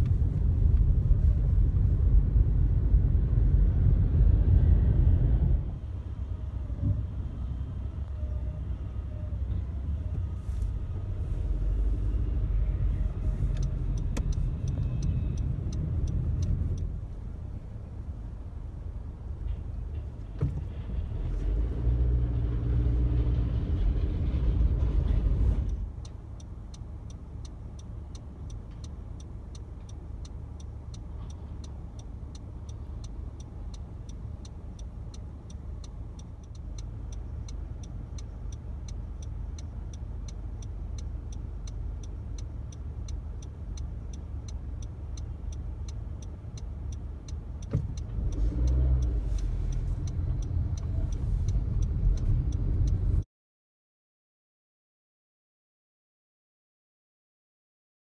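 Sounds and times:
street background: 0.0 - 53.2
tram passing with rumble: 23.0 - 25.9
steady quick ticking: 26.0 - 53.0.

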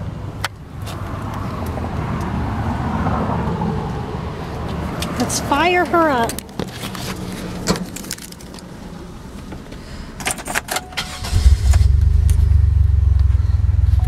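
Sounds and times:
car engine starting and idling: 7.2 - 14.0.

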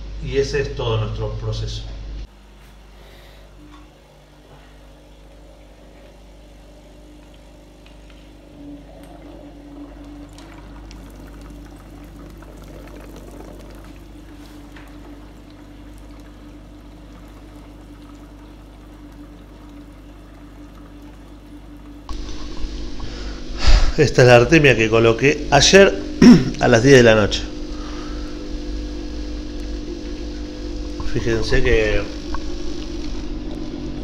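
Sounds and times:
air pump humming: 0.0 - 34.0
air bubbling through water: 8.5 - 21.0, 22.1 - 34.0.

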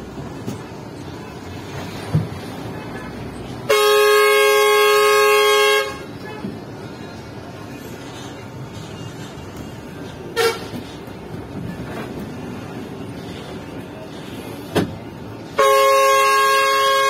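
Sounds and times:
engine and road rumble: 0.0 - 17.0
loud air horn chord: 3.7 - 6.1, 10.4 - 10.7, 15.6 - 17.0.

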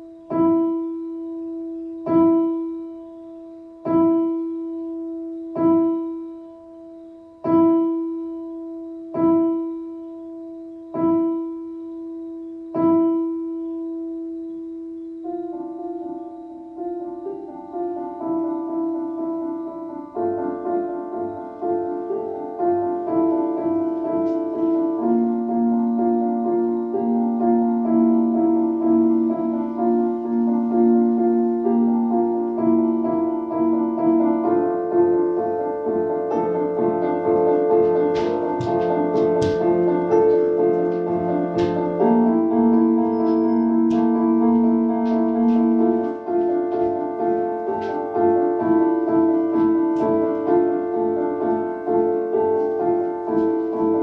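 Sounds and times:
electronic keyboard piano chords: 0.0 - 54.0.

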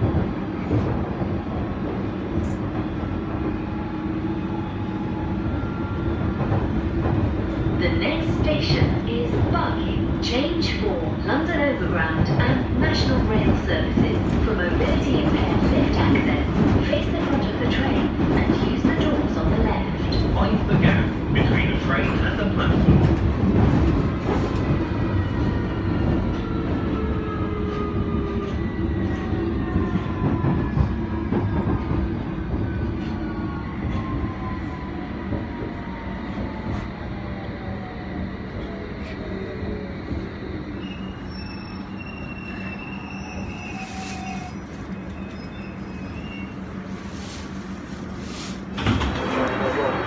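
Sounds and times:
train wheels rumbling on rail: 0.0 - 50.0
wheel and brake squeals: 40.8 - 46.7.

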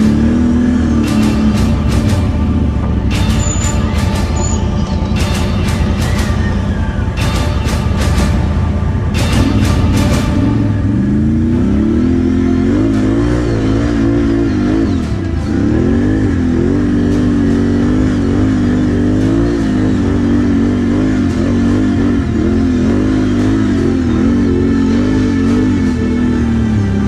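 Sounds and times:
atv engine revving hard: 0.0 - 3.8, 9.2 - 27.0.

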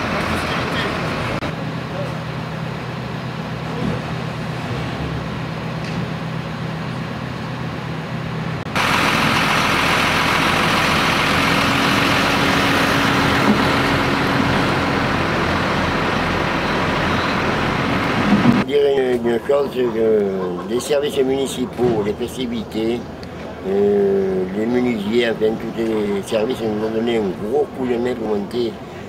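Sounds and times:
hissy engine drone: 0.0 - 18.6
truck engines humming: 0.0 - 29.0.

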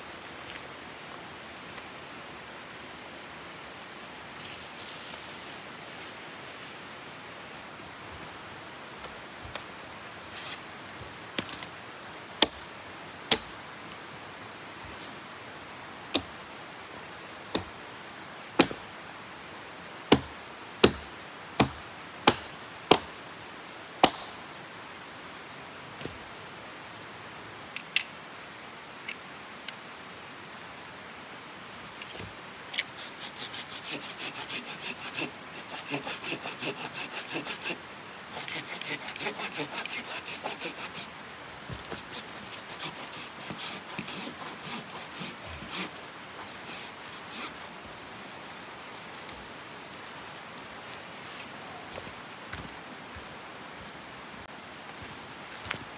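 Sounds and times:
hand saw cutting wood: 32.8 - 41.1, 41.9 - 47.6.

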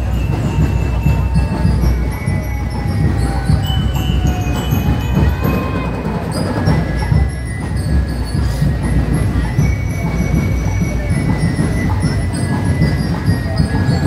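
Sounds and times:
crowd walking: 0.0 - 14.0
parade drumming: 0.0 - 14.0.

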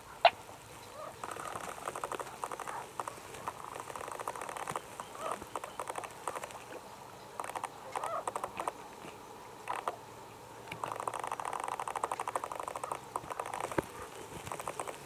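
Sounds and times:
pulsed rattling animal calls: 0.9 - 6.8, 7.4 - 8.8, 9.7 - 10.0, 10.7 - 15.0.

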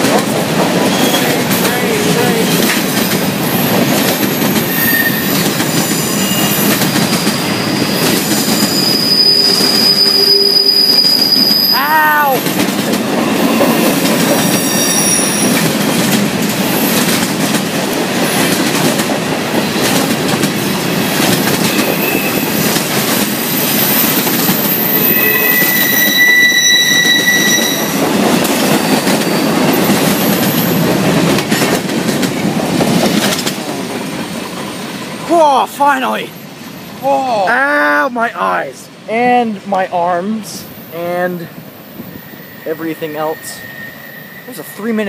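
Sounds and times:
freight train rumbling over rail joints: 0.0 - 45.0
wheel squeals: 0.8 - 1.4, 2.4 - 12.0, 13.2 - 16.1, 21.6 - 22.7, 23.4 - 28.0, 42.0 - 45.0.

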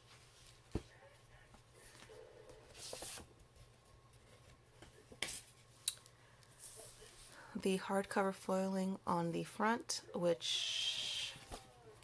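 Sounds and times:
book handling: 1.8 - 5.6
paper rustling: 2.7 - 5.6.

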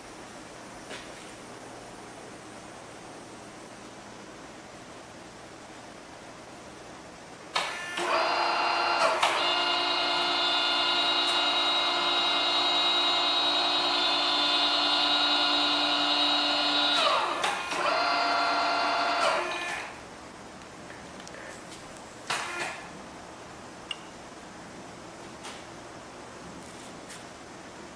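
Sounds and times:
drilling machine whine: 7.6 - 20.0.

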